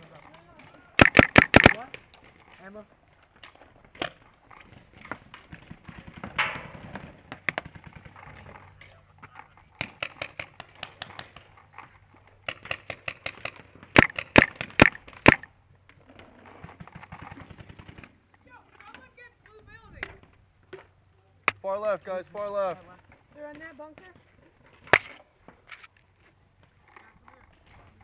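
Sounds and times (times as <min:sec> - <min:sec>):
paintball marker shots: 0:01.0 - 0:01.9, 0:12.5 - 0:15.5, 0:24.9 - 0:25.2.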